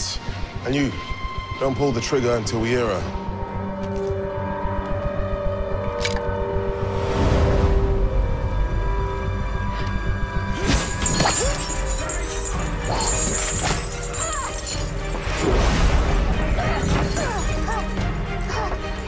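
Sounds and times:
dramatic music: 0:00.0 - 0:19.0
glass shattering: 0:10.5 - 0:18.0.

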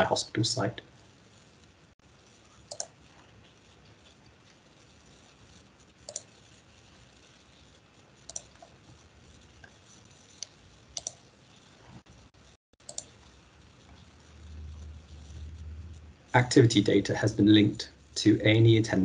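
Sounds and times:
faint computer clicks: 0:02.7 - 0:03.0, 0:06.0 - 0:06.4, 0:08.3 - 0:08.8, 0:10.4 - 0:11.2, 0:12.8 - 0:13.2.

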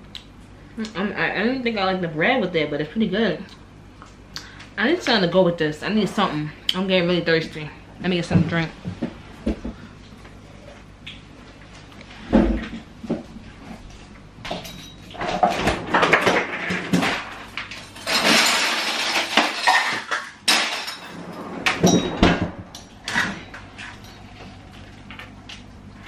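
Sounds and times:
rattling rush: 0:21.0 - 0:24.2
refrigerator door opening: 0:21.1 - 0:24.0.

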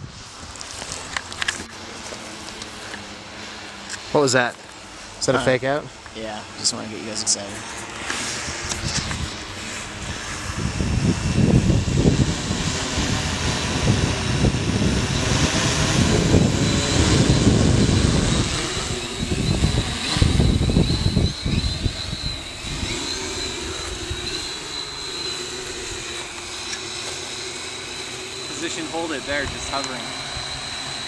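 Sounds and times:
drone motors and propellers: 0:00.0 - 0:31.0
high wavering whine: 0:00.0 - 0:31.0
gusty rumble: 0:08.2 - 0:24.6.

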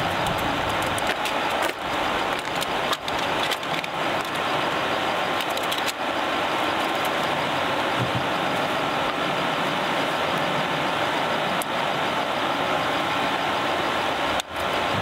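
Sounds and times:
campfire crackling and popping: 0:00.0 - 0:10.6.

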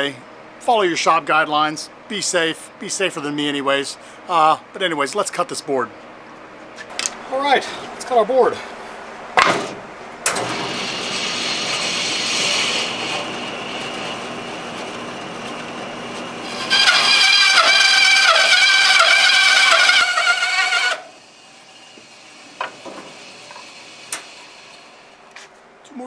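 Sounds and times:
bandsaw cutting wood: 0:10.4 - 0:25.2.

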